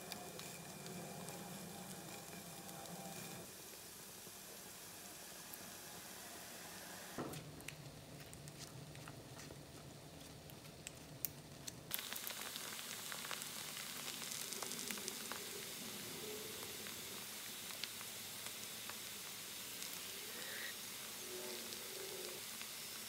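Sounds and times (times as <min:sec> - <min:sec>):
potatoes sizzling in a pan: 0:00.0 - 0:07.2, 0:11.9 - 0:23.0.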